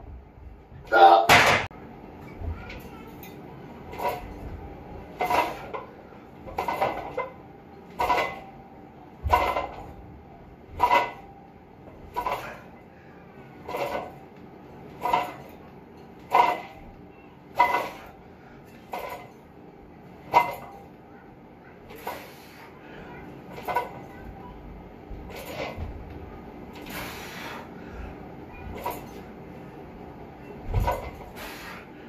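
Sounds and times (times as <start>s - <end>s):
weight plates clanking: 2.3s - 12.8s, 13.6s - 14.3s, 14.9s - 19.5s, 20.2s - 20.9s, 21.8s - 24.5s, 25.1s - 27.7s.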